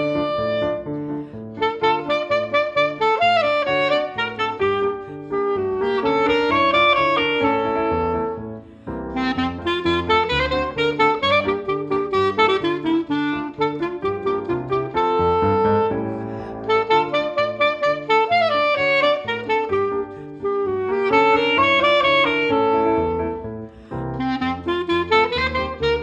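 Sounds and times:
clarinet melody: 0.0 - 26.0
piano accompaniment: 0.0 - 26.0.

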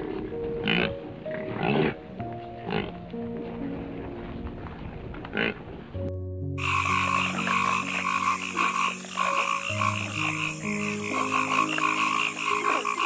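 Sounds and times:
gentle music of held notes: 0.0 - 13.0
frogs calling in chorus: 0.6 - 2.0, 5.3 - 5.6, 6.6 - 13.0.

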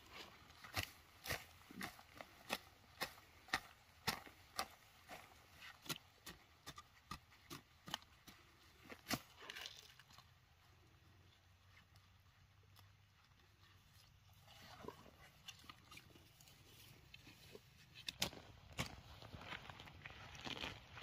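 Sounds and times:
hand hoe chopping into soil: 0.6 - 9.9, 17.2 - 19.6.

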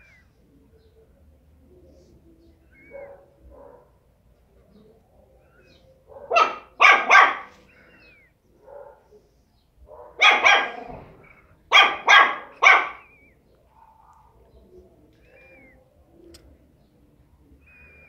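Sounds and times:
small dog barking: 2.8 - 4.0, 6.1 - 7.6, 8.6 - 9.1, 9.9 - 11.1, 11.7 - 13.1.

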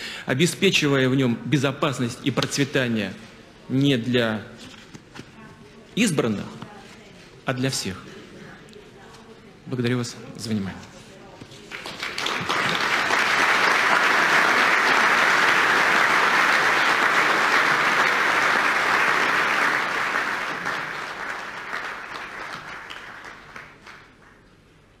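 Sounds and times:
audience applauding: 11.7 - 24.8.

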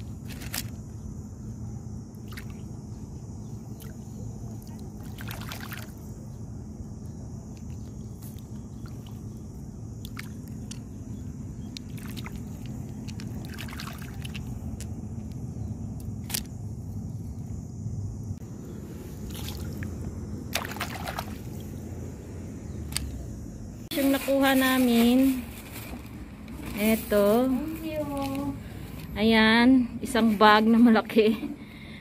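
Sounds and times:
low background rumble: 0.0 - 32.0
water splashing: 4.6 - 6.0, 10.0 - 10.6, 11.9 - 14.6, 19.2 - 21.6.

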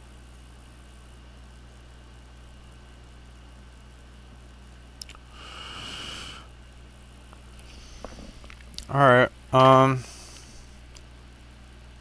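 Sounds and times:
soldering iron sizzling: 7.2 - 8.7.

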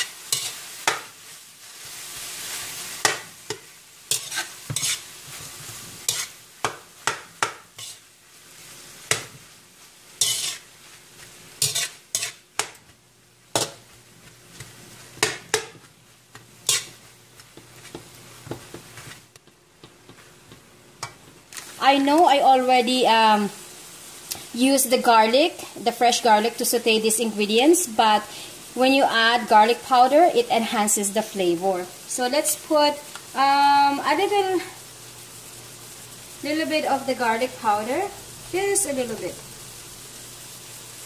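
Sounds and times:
utensil scraping a frying pan: 0.0 - 1.1, 2.2 - 6.4, 7.0 - 8.1, 10.1 - 12.8, 16.6 - 19.2
soft sizzle: 0.0 - 41.0.

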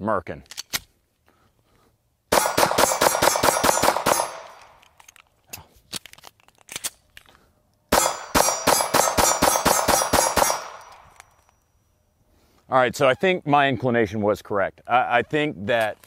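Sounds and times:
rapid pistol shots: 2.3 - 4.8, 7.9 - 11.0.

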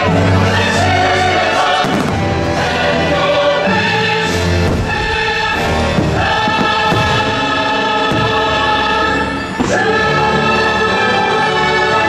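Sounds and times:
choir singing held chords: 0.0 - 12.0
orchestra playing: 0.0 - 12.0
firework bang: 1.8 - 2.3, 4.6 - 7.5.

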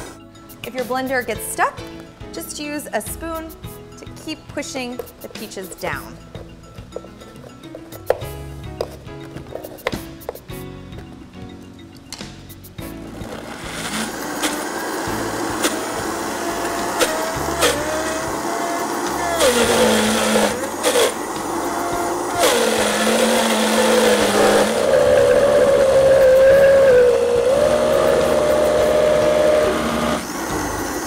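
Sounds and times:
blender motor under heavy load: 13.0 - 31.0.

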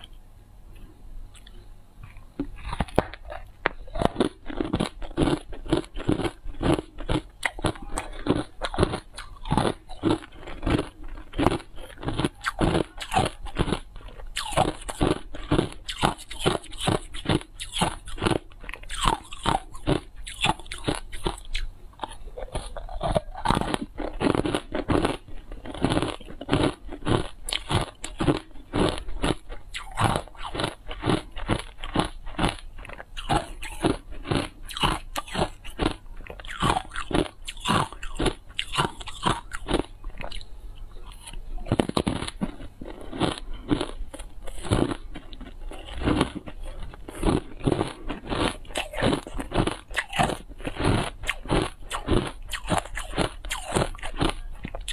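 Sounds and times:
ice being chewed: 1.3 - 54.9.

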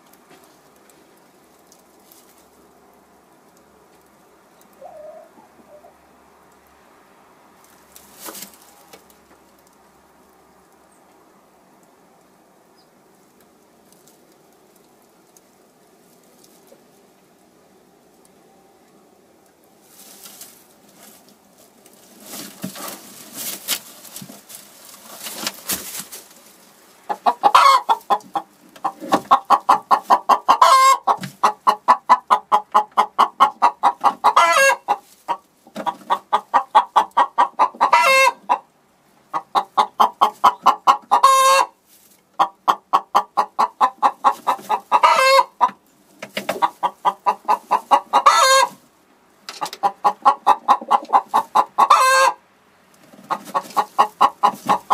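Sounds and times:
straw rustling: 0.0 - 5.9, 7.5 - 10.8, 13.0 - 38.4, 43.6 - 54.9
hen cackling: 4.7 - 6.0, 27.0 - 38.7, 39.3 - 41.8, 42.4 - 45.8, 46.5 - 48.8, 49.6 - 52.4, 53.2 - 54.9.

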